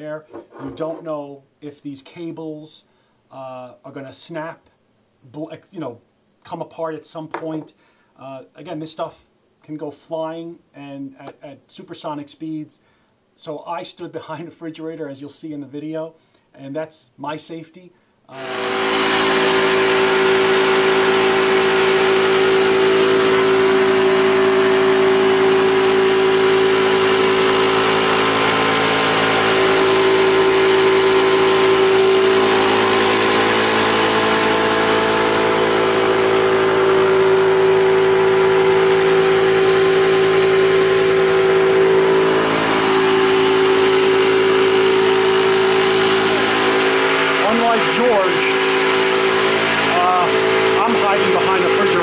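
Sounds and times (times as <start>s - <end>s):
air compressor humming: 18.3s - 52.0s.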